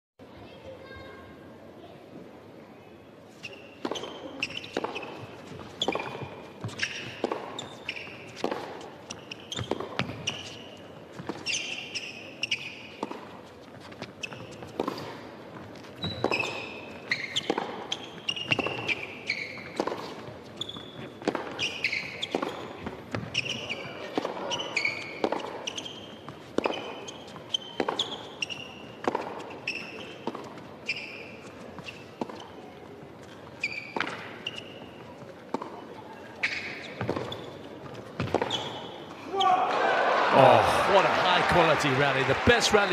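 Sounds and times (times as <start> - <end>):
shoes squeaking on court: 3.2 - 39.6
tennis ball bouncing: 3.4 - 39.0
racket striking tennis ball: 3.8 - 10.6, 14.5 - 15.3, 16.0 - 20.2, 21.2 - 25.9, 26.5 - 30.6, 32.1 - 32.5, 33.9 - 34.6, 36.4 - 38.8.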